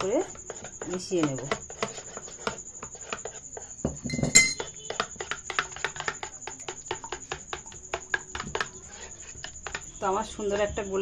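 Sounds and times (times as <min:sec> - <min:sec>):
ringing clink: 0:04.1 - 0:04.6.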